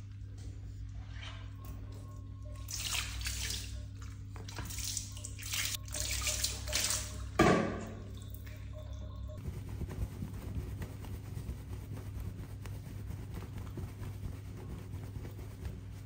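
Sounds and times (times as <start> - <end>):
water splashing over wet fur: 2.5 - 7.4, 8.0 - 16.0.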